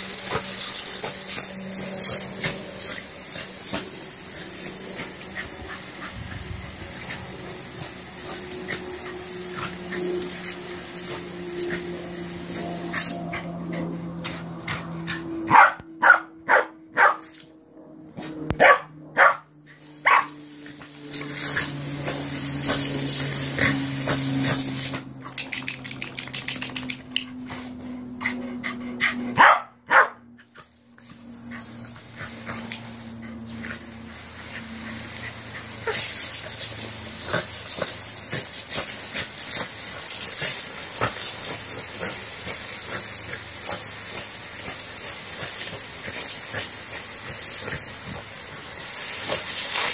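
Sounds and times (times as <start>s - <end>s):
water spraying over grass: 0.0s - 15.4s, 19.7s - 27.7s, 30.5s - 49.9s
dog barking: 15.5s - 17.2s, 18.6s - 20.4s, 29.4s - 30.3s.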